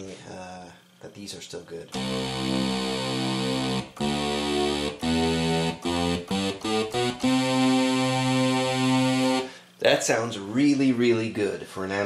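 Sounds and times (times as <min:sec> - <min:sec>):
buzzy analog synthesizer notes: 0:01.9 - 0:09.5.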